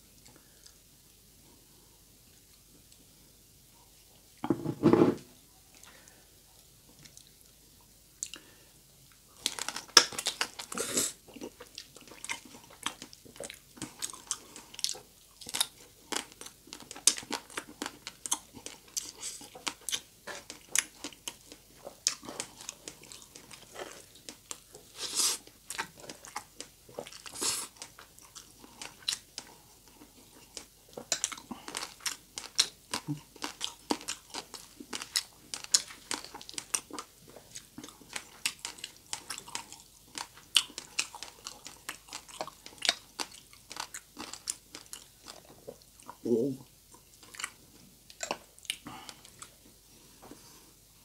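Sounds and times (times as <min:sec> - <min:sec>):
crunchy chewing: 0:09.4 - 0:46.2, 0:46.9 - 0:49.7.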